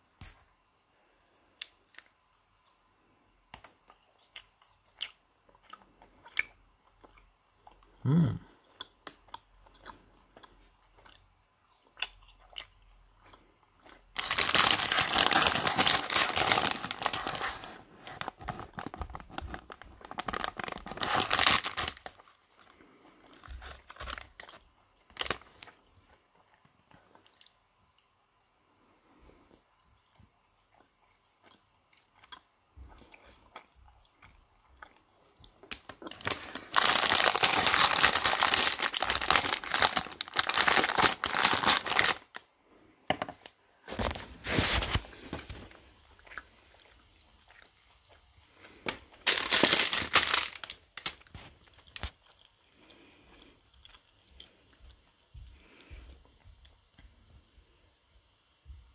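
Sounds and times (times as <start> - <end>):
plastic wrapper crinkling: 14.1 - 22.4, 23.4 - 25.8, 35.7 - 42.4, 48.8 - 52.2.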